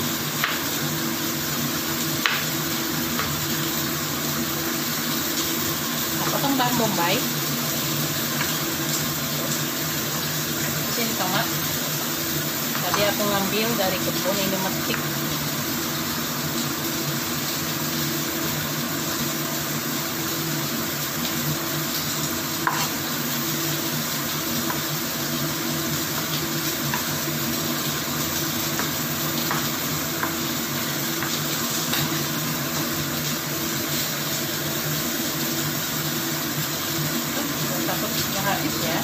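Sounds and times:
knife tapping cutting board: 22.6 - 22.9, 28.8 - 30.4.

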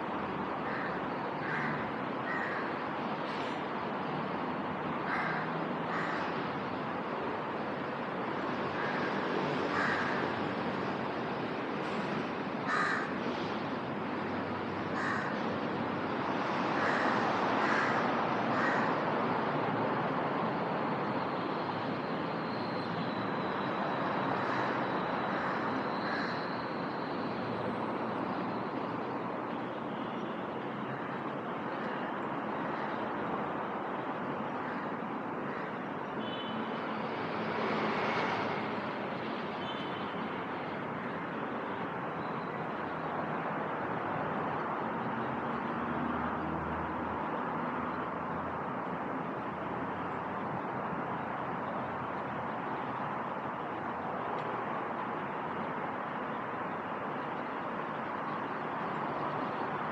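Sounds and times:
city noise: 0.0 - 59.9
crow cawing: 0.6 - 2.8, 5.0 - 6.4, 8.8 - 10.4, 12.6 - 13.2, 14.9 - 15.4, 16.8 - 19.0, 24.4 - 26.6, 34.6 - 35.8.

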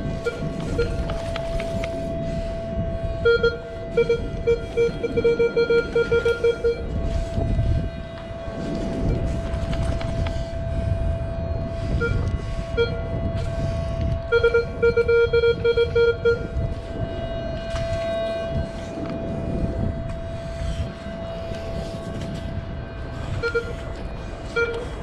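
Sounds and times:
metal detector beeps: 0.2 - 1.9, 3.2 - 6.8, 12.0 - 13.0, 14.3 - 16.5, 23.4 - 23.8, 24.5 - 25.0.

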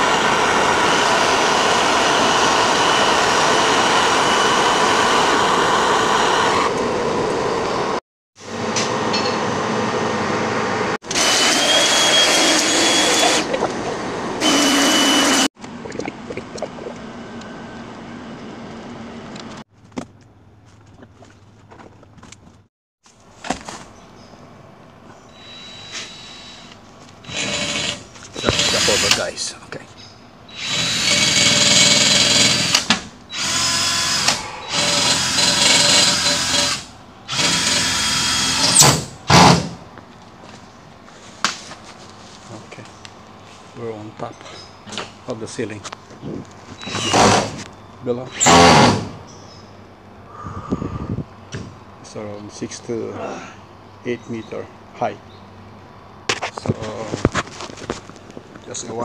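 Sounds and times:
power tool motor whining: 0.0 - 7.0, 11.0 - 13.5, 14.4 - 15.5, 25.3 - 29.3, 30.5 - 39.7.

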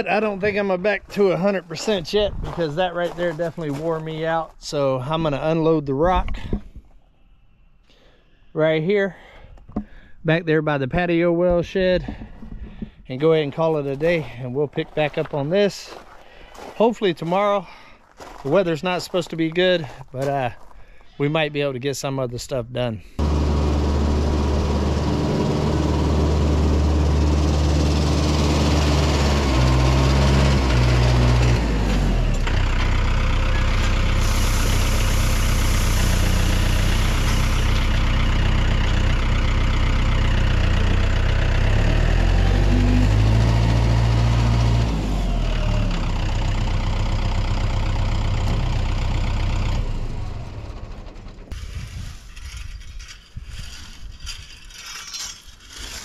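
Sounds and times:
tractor engine running: 23.2 - 52.7.

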